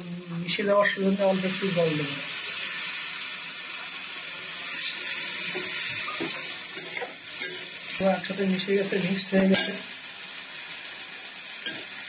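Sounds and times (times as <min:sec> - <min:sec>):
water sizzling in hot oil: 0:00.0 - 0:12.0
spatula scraping pan: 0:04.7 - 0:08.0.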